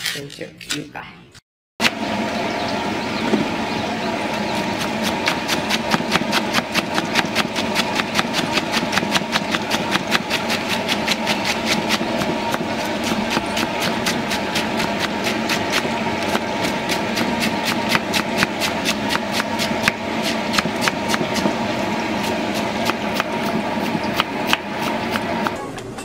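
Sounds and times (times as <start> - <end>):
engine-like hum: 1.8 - 26.0
knife chopping on wooden board: 4.8 - 21.6, 22.5 - 25.6.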